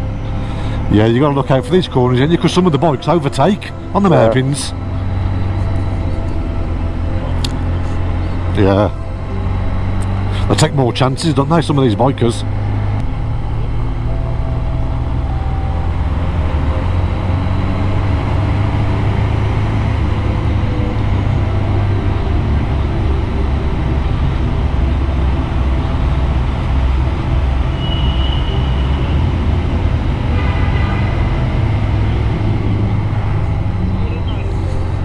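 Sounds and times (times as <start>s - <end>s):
motorcycle engine and tyre rumble: 0.0s - 35.0s.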